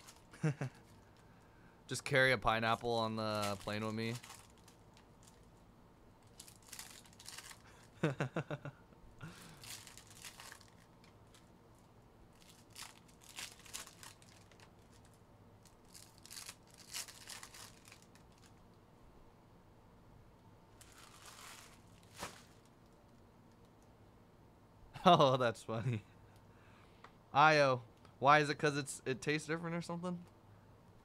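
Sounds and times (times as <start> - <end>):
foil wrapper crinkling and tearing: 0.0 - 1.3, 2.7 - 5.5, 6.2 - 7.9, 9.3 - 11.5, 12.3 - 18.6, 20.8 - 22.7.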